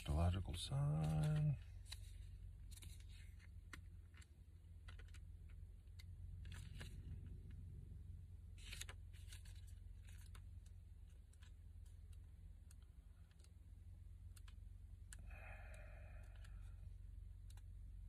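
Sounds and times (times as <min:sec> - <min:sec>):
steady low hum: 0:00.0 - 0:18.0
soft page rustle: 0:00.5 - 0:07.6, 0:08.6 - 0:13.6.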